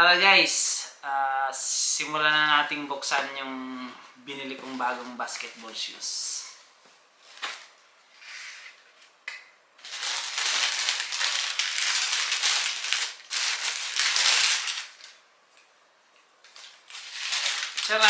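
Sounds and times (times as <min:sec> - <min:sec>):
tissue paper crinkling: 0:09.8 - 0:15.2, 0:16.5 - 0:18.0.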